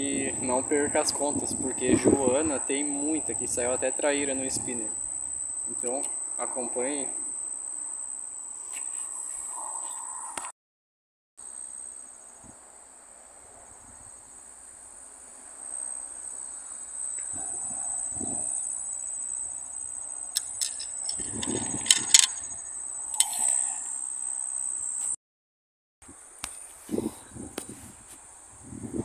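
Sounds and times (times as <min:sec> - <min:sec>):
insects shrilling: 0:00.0 - 0:10.4, 0:15.6 - 0:25.2
sharp clicks: 0:20.4 - 0:22.5, 0:23.2 - 0:23.6.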